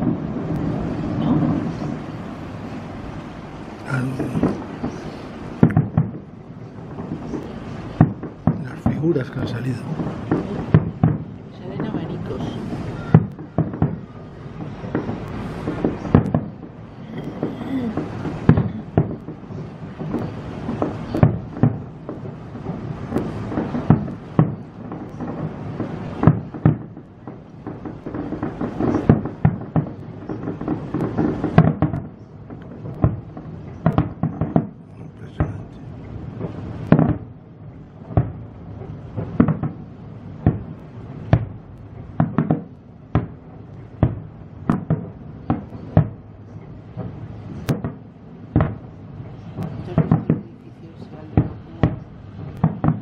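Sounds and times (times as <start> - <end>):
firework shells bursting: 3.7 - 53.0.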